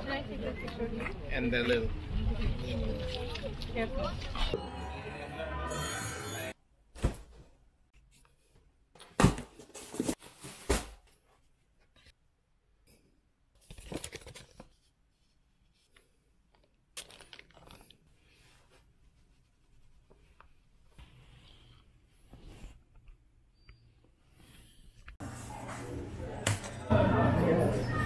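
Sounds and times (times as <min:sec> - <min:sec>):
paper and plastic rustling: 0:13.6 - 0:14.9.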